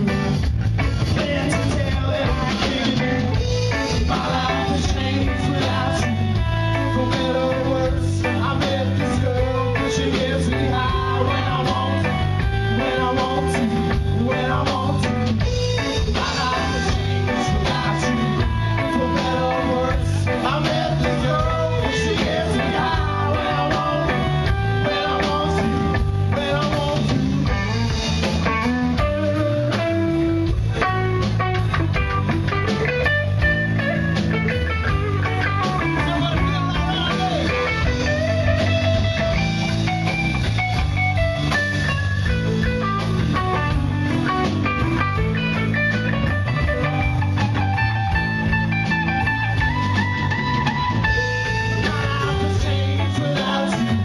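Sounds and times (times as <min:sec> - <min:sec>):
man singing: 0:00.0 - 0:28.0, 0:35.2 - 0:38.8, 0:51.2 - 0:54.0
blues rock band playing: 0:00.0 - 0:54.0
drum kit: 0:00.0 - 0:54.0
electric guitars: 0:00.0 - 0:54.0.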